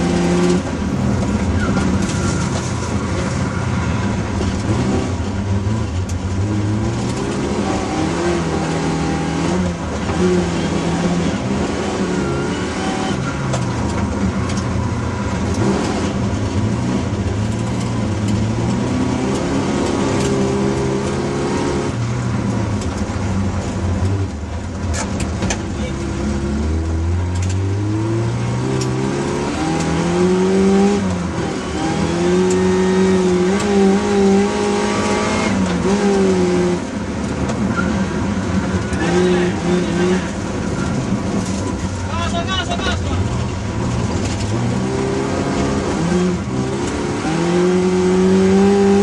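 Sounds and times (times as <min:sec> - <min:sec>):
car engine revving: 0:00.0 - 0:49.0.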